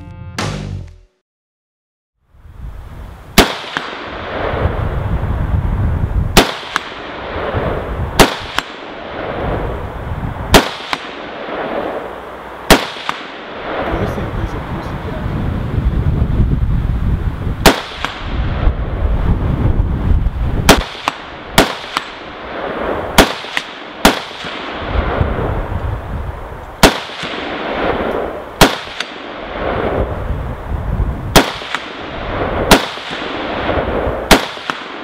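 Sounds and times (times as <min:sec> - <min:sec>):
rifle shots: 0:03.4 - 0:04.7, 0:06.3 - 0:09.6, 0:10.5 - 0:13.9, 0:17.6 - 0:18.4, 0:20.6 - 0:25.2, 0:26.8 - 0:30.0, 0:31.3 - 0:35.0.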